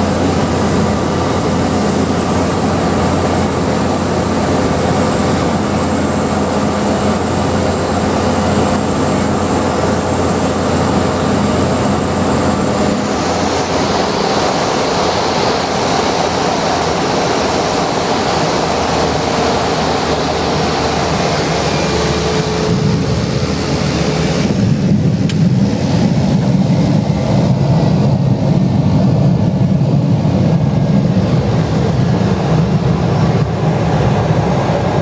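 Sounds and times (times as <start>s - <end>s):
aircraft rumbling on runway: 0.0s - 35.0s
turboprop engine and propeller: 0.0s - 35.0s.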